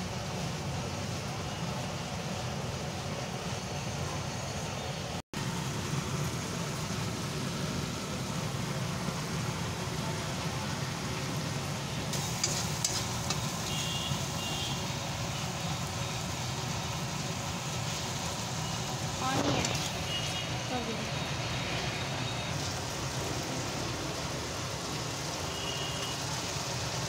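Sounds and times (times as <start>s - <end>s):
spices sizzling in a pan: 5.4s - 27.0s.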